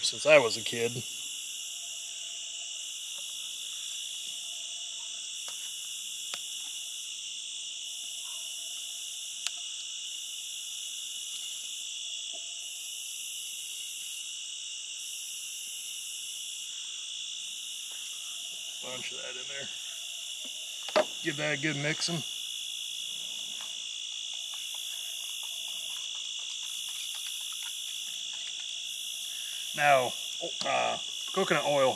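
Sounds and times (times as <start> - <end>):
crickets and insects trilling: 0.0 - 31.9
faint sharp clicks: 9.4 - 9.6.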